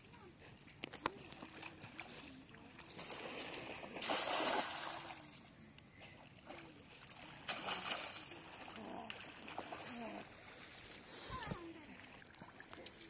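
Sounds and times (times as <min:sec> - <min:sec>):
net splashing on water: 0:01.4 - 0:05.2, 0:07.4 - 0:09.9
hand splashing water: 0:02.9 - 0:05.3, 0:07.5 - 0:08.7.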